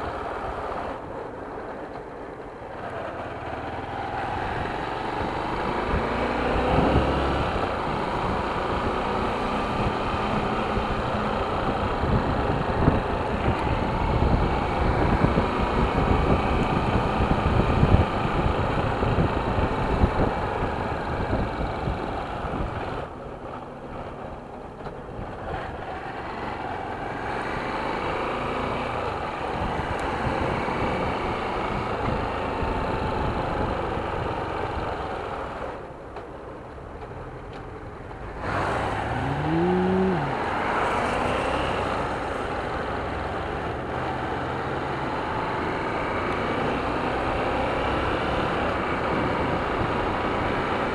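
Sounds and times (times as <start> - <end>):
motorcycle engine revving: 38.4 - 42.2.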